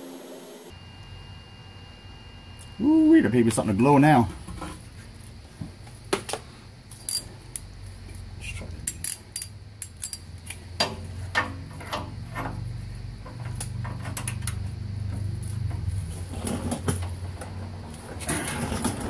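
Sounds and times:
low steady hum: 0.0 - 16.7
metal clinks of wrench and socket: 7.0 - 7.3, 8.8 - 10.3.

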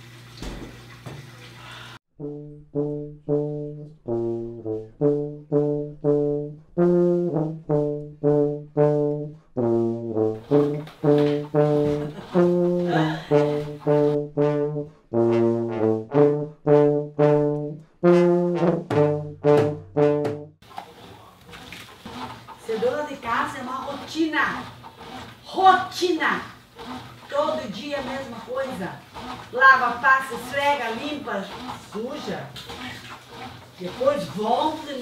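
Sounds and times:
brass band playing accented chords: 2.2 - 20.6.

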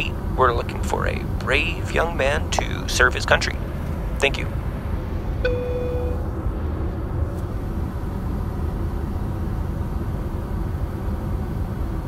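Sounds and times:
airliner cabin drone: 0.0 - 12.0
electronic chime: 5.4 - 6.2.

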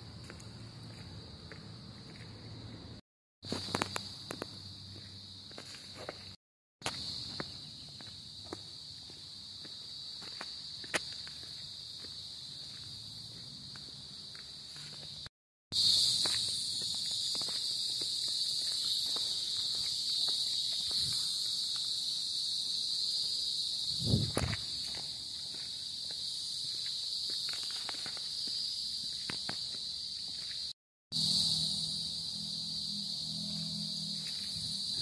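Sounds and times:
insect chorus droning: 0.0 - 35.0
footsteps on concrete: 0.2 - 2.7, 3.4 - 30.8.

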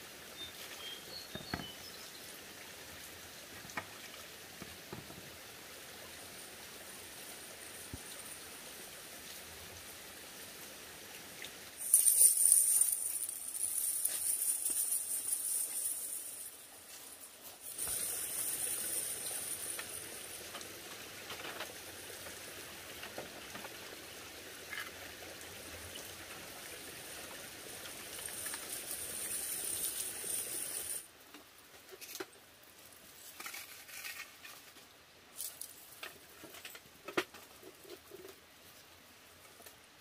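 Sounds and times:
high outdoor hiss: 0.0 - 40.0.

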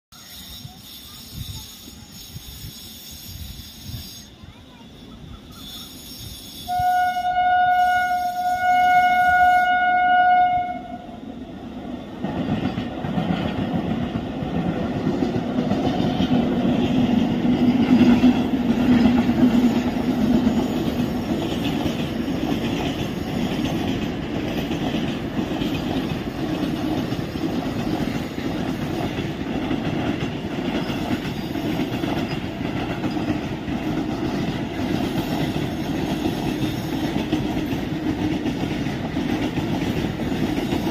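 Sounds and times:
train rumble and wheel clatter: 0.1 - 40.9
electric locomotive horn blast: 6.6 - 11.3.

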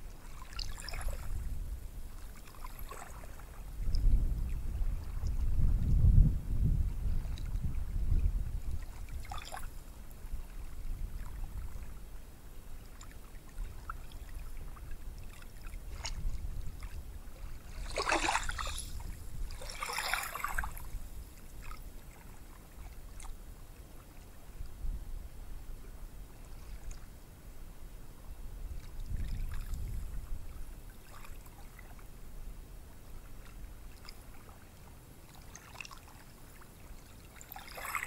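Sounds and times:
low steady rumble: 3.2 - 31.0.

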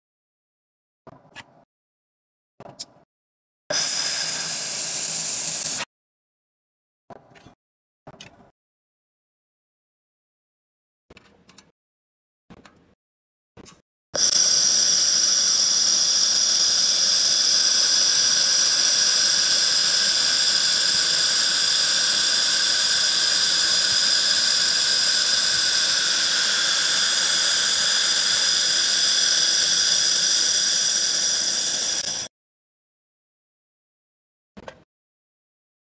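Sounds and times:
laser welding gun hissing: 3.7 - 5.9, 14.2 - 32.3.

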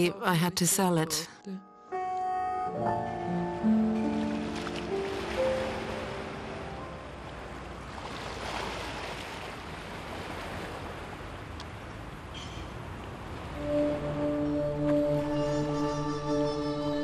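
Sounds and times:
sea waves washing onto beach: 4.0 - 11.5.

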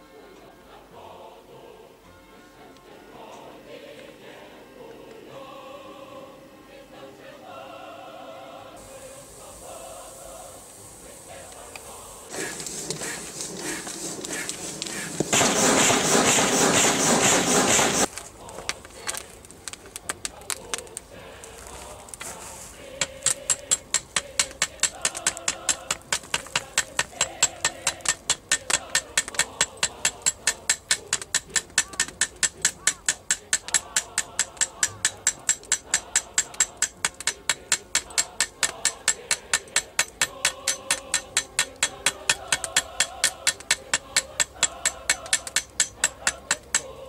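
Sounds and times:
hammer striking metal on anvil: 23.0 - 46.9.

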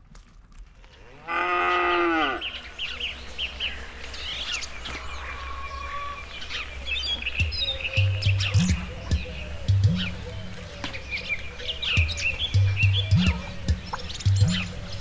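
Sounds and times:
birds chirping: 0.6 - 15.0
cow lowing: 1.2 - 2.5.

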